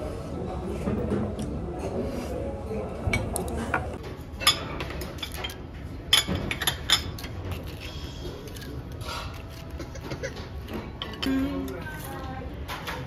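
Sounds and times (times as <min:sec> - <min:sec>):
low restaurant background: 0:00.0 - 0:13.0
chopsticks and spoon clinking on bowls: 0:03.2 - 0:13.0.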